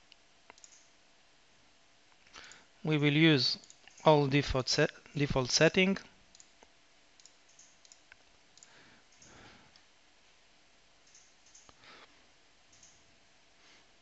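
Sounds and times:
faint computer mouse clicks: 0.5 - 0.9, 6.3 - 9.8, 11.0 - 11.8, 12.7 - 13.0.

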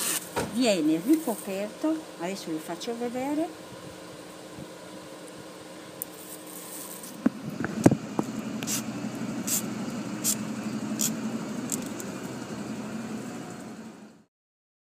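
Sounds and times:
low motor hum: 0.3 - 14.3
raffia strands rustling: 6.1 - 7.2.

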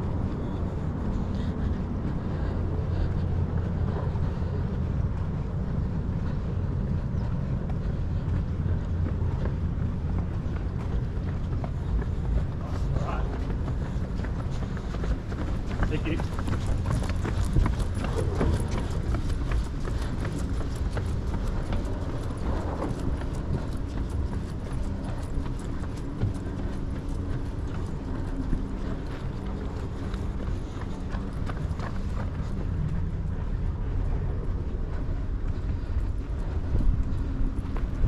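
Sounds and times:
footsteps on concrete: 0.1 - 38.0.

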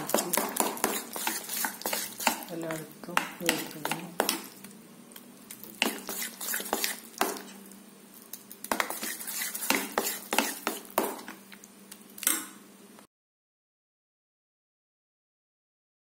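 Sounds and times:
spoon clinking and scraping pan: 0.0 - 2.5, 5.8 - 7.5, 8.7 - 11.3
spoon stirring thick batter: 0.0 - 4.8, 5.5 - 7.7, 8.3 - 11.7.

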